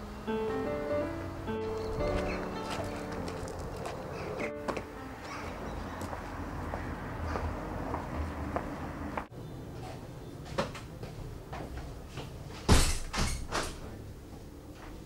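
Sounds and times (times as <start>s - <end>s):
footsteps on hard floor: 1.8s - 5.4s
door banging shut: 12.7s - 13.9s.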